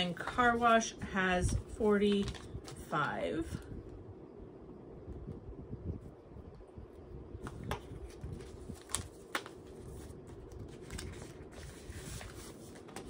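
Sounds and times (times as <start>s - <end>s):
paper and plastic rustling: 0.0s - 2.9s, 7.4s - 13.0s.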